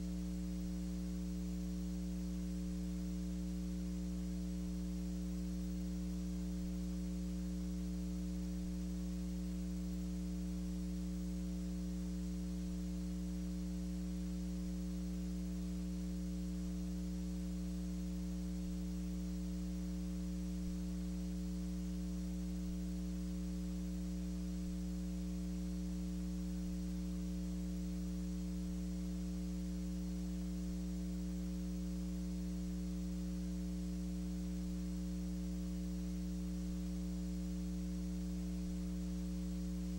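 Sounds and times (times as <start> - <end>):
electrical mains hum: 0.0 - 39.9
faint hiss: 0.0 - 39.9.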